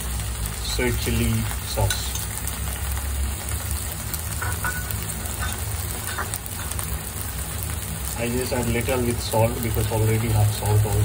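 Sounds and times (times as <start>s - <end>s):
shrimp frying in a pan: 0.0s - 11.0s.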